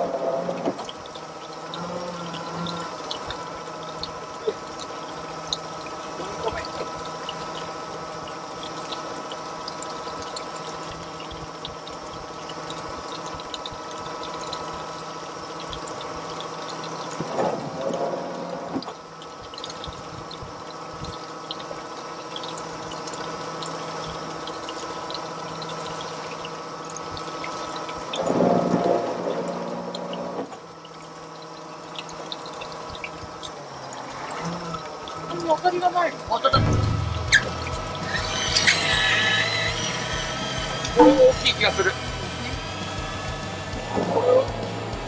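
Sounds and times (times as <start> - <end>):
motor hum: 0.0 - 45.0
loud wavering sound: 36.5 - 45.0.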